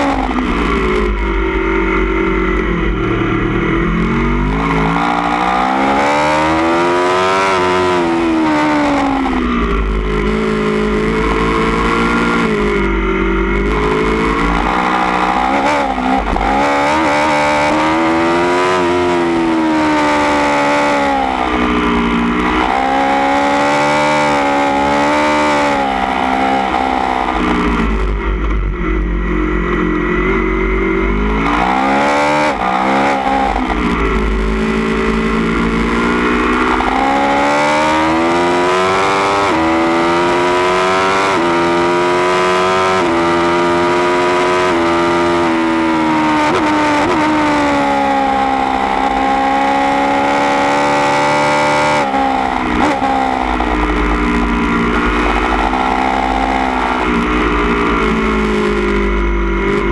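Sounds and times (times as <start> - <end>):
motorcycle engine revving through gears: 0.0 - 59.9.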